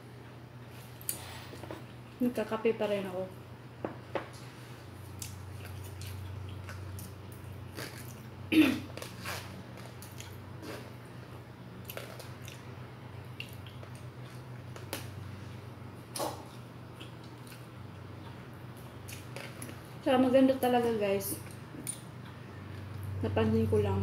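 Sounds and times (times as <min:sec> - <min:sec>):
steady low hum: 0:00.0 - 0:24.0
chewing: 0:05.1 - 0:08.3, 0:08.9 - 0:11.0, 0:11.8 - 0:15.0, 0:16.2 - 0:19.9.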